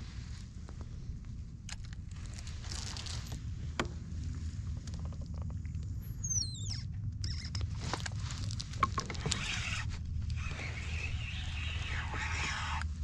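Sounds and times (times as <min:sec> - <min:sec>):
high squeaky chirps: 0:06.1 - 0:07.7.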